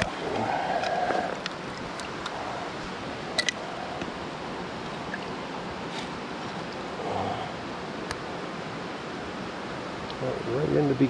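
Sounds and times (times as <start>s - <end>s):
water running over rocks: 0.0s - 11.0s.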